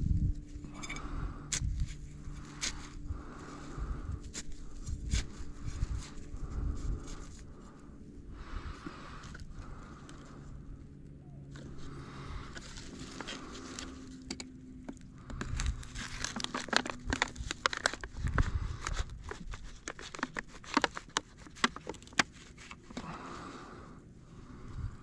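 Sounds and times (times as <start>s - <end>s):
crinkling and crackling: 1.8s - 23.8s.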